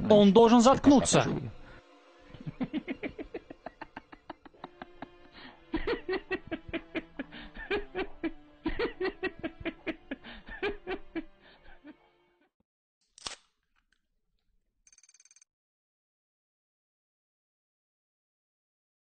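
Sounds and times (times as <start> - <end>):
man laughing: 2.3 - 12.1.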